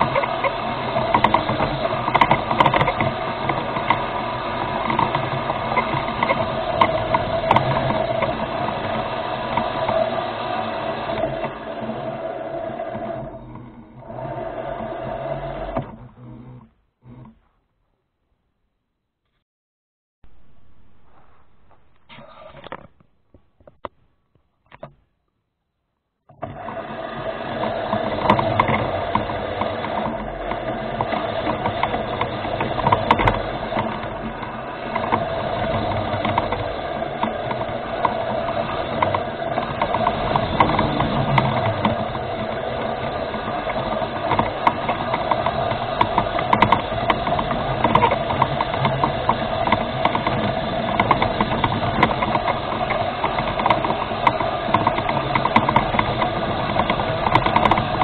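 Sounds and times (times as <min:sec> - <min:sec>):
small clicks and rattles: 0:00.0 - 0:14.3, 0:27.5 - 0:58.0
electric motors whirring: 0:00.0 - 0:17.4, 0:26.3 - 0:58.0.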